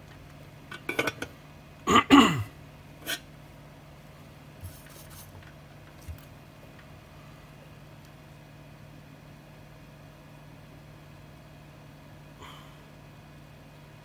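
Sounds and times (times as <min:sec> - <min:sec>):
person clearing throat: 0:01.9 - 0:03.2.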